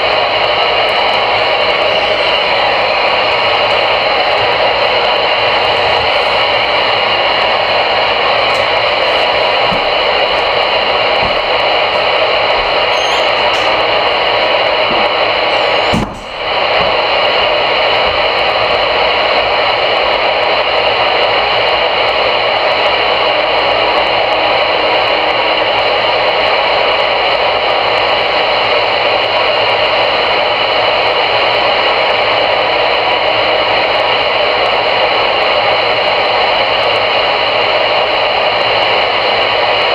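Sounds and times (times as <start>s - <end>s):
radio static hiss: 0.0s - 21.6s.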